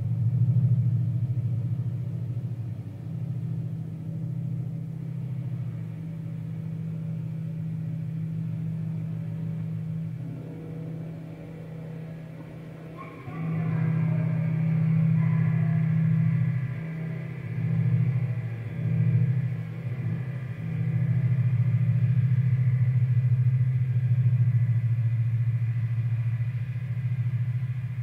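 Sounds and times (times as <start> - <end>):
low ambient drone: 0.0 - 28.0.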